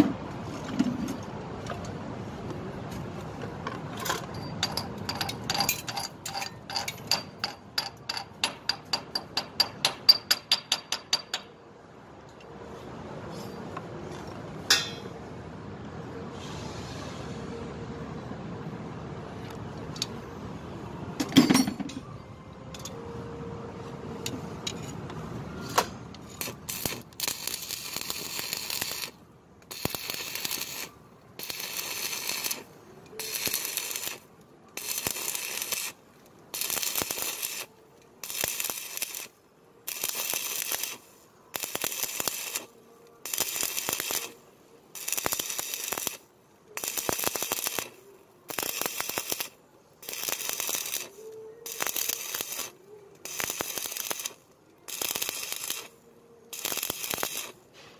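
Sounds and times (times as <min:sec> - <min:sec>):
welding arc crackling and hissing: 0:26.3 - 0:57.6.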